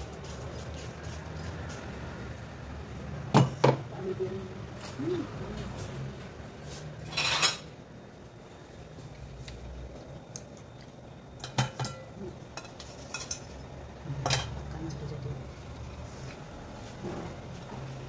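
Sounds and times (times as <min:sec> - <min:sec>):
kitchen utensils and dishes clinking: 0:07.0 - 0:07.8, 0:11.4 - 0:13.6, 0:14.2 - 0:14.7.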